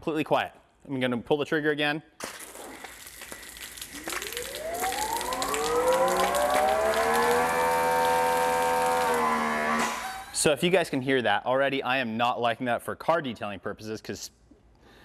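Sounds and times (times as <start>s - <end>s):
water hissing from nozzle: 2.4s - 10.3s
pressure washer motor whine: 4.0s - 10.4s.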